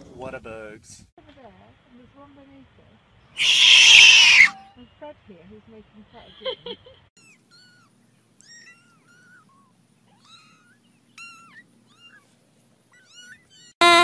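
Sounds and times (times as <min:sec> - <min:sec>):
kittens mewing: 0:03.4 - 0:04.6, 0:07.2 - 0:13.8.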